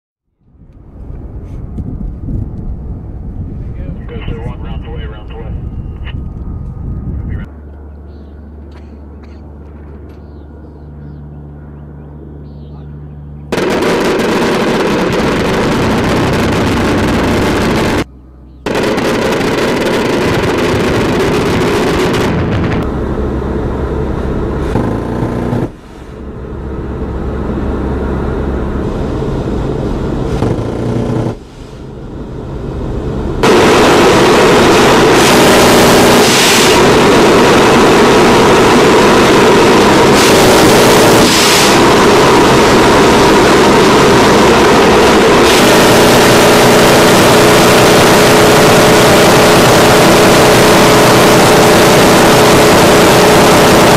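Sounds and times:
propeller aircraft engines: 0.4s - 53.9s
gunfire-like noise: 13.5s - 16.6s.

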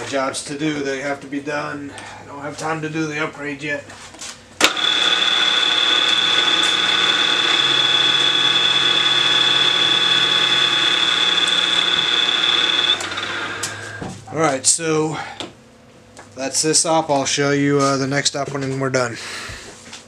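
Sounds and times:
end mill cutting plastic: 4.6s - 14.0s
high whine: 4.6s - 15.2s.

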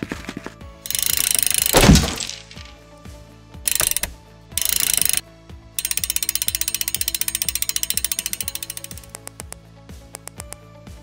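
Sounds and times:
background music with steady beat: 0.0s - 11.0s
fast mechanical rattle: 0.9s - 2.7s, 3.7s - 5.2s, 5.8s - 9.1s.

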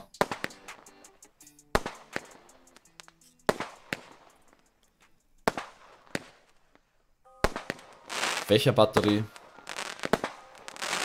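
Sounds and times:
firework pops and crackles: 0.1s - 0.9s, 1.7s - 11.0s
firework shot reports: 7.4s - 11.0s.

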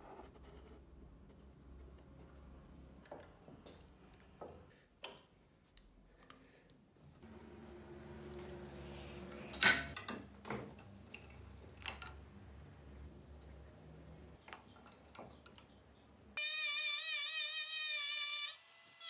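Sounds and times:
rotary tool high whine: 16.4s - 19.0s.

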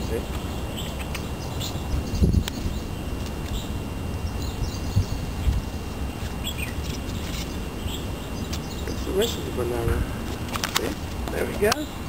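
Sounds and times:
bird chirps: 0.0s - 9.6s
steady low rumble: 0.0s - 12.0s.

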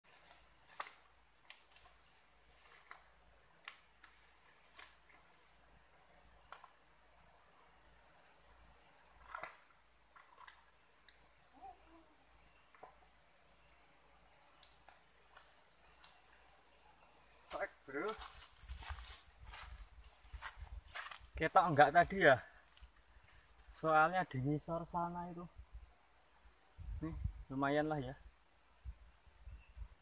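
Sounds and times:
insects droning: 0.0s - 30.0s
faint clicks and snaps: 3.6s - 4.2s, 14.6s - 15.0s.

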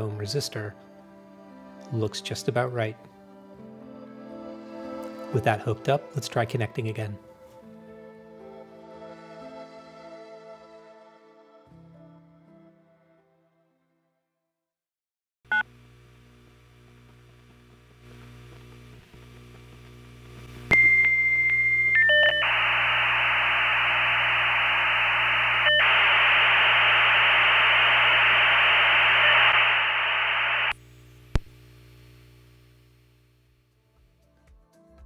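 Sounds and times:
modem hissing data noise: 15.5s - 32.7s
dial-up modem tones: 20.7s - 30.8s
click: 31.3s - 31.6s.

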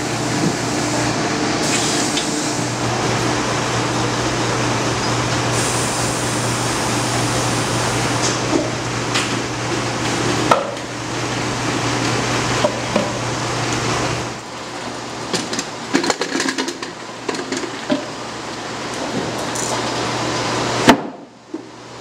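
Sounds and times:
machinery humming: 0.0s - 20.8s.

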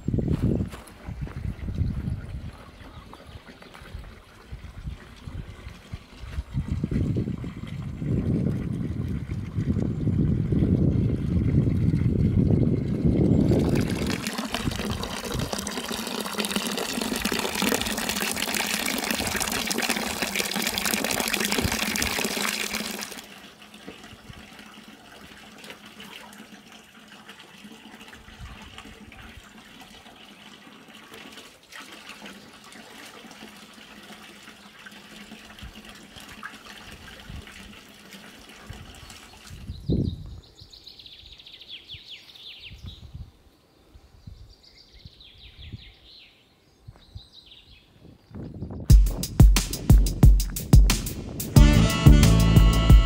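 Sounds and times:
water splashing into trough: 3.1s - 39.6s.

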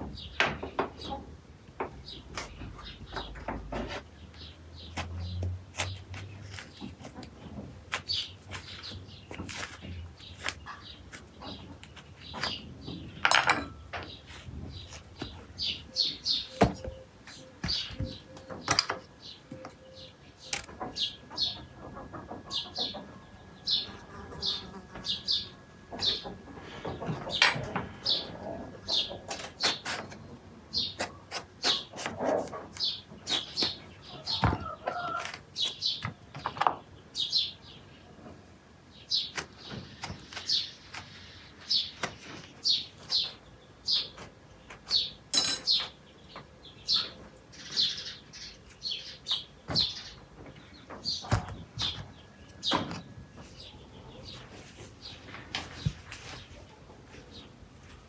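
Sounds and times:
small bird chirping: 14.2s - 21.8s.

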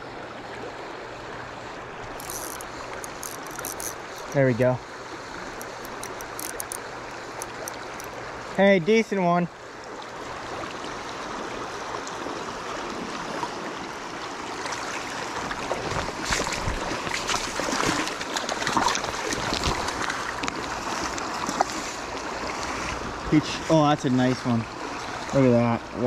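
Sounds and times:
creek water running over rocks: 0.2s - 26.0s
legs splashing through water: 14.6s - 23.2s.

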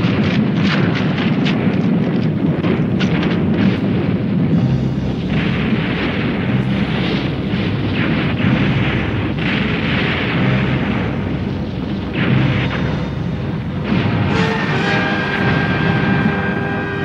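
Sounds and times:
fire burning: 0.0s - 17.0s
rumbling explosions: 0.0s - 17.0s
sharp cracks: 0.0s - 17.0s.

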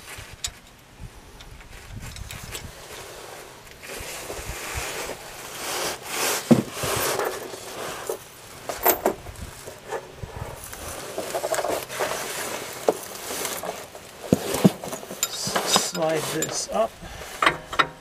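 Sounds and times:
body shifting on ground: 1.5s - 18.0s
wrench and bolts knocking on metal: 17.4s - 18.0s.

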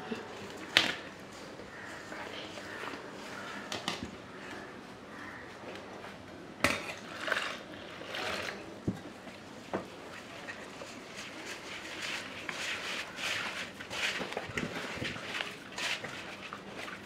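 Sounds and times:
hands mixing flour rustle: 7.3s - 17.0s.

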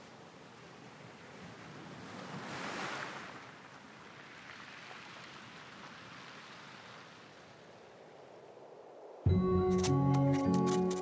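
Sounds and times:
ocean waves washing on shore: 0.0s - 8.7s.

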